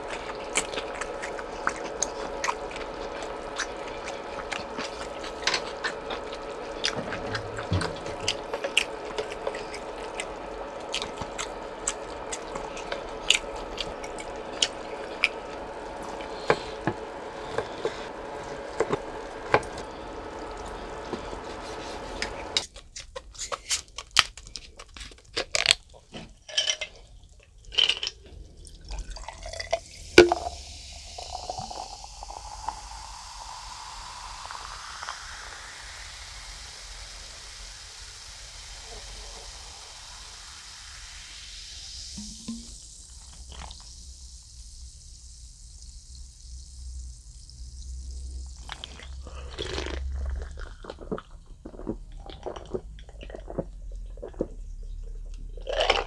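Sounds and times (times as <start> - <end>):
liquid pouring into vessel: 0.0 - 22.6, 27.9 - 35.9, 41.3 - 44.0
steady background hum: 0.0 - 56.0
chewing with wet clicks and smacks: 0.1 - 15.4, 48.6 - 56.0.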